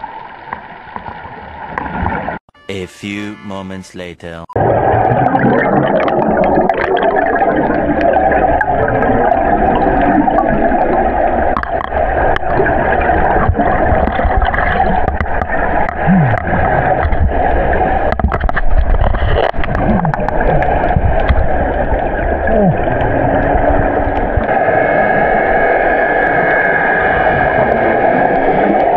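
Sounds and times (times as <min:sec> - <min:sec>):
muffled underwater gurgling rush: 0:04.6 - 0:25.6.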